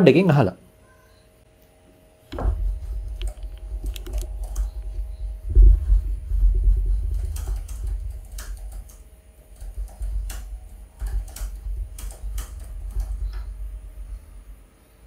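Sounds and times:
low rumble: 2.3 - 15.0
keyboard keystroke clicks: 3.1 - 4.9.

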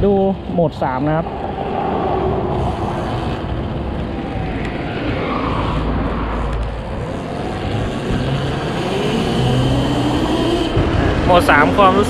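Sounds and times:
steady low rumble: 0.0 - 8.7
electric motor under throttle: 2.5 - 3.9, 6.9 - 11.3.

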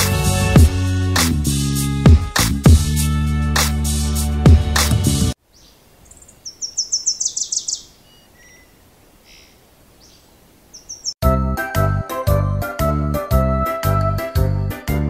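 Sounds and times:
music: 0.0 - 5.4, 11.2 - 15.0
bird chirping: 5.4 - 11.2.

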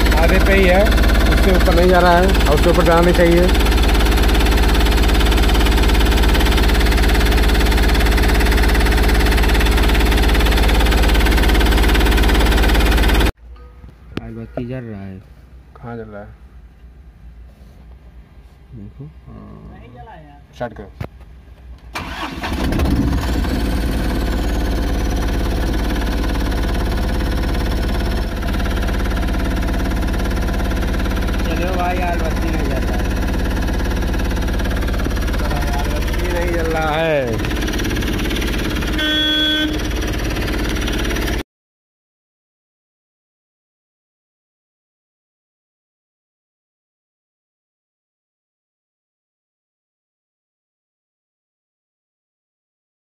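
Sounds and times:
diesel engine idling: 0.0 - 13.3, 22.0 - 41.4.

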